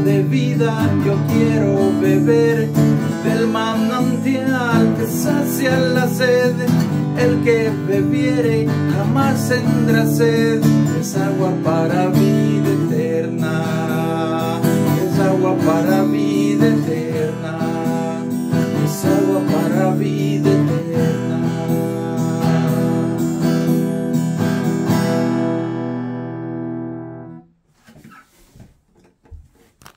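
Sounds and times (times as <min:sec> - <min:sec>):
acoustic guitar strumming: 0:00.0 - 0:27.4
scratchy handling noises: 0:27.7 - 0:29.9.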